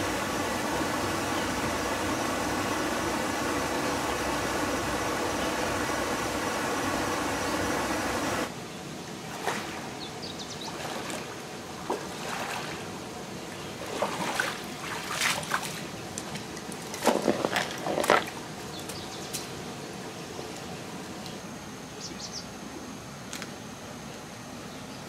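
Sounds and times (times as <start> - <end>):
steady rushing noise: 0.0 - 8.7
person wading through stream: 10.7 - 18.4.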